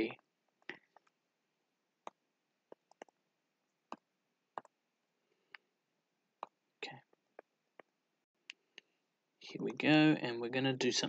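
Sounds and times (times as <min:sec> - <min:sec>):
stylus tapping on tablet screen: 0:00.1 - 0:01.2, 0:02.0 - 0:03.2, 0:03.8 - 0:04.8, 0:06.4 - 0:08.0.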